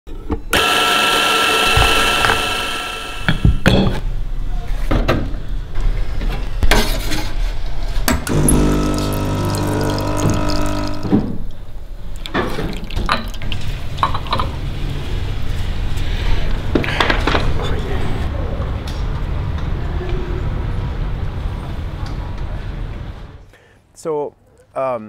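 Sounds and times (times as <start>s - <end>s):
espresso machine pump hum: 8.3s - 11.2s
espresso running into cup: 8.3s - 11.2s.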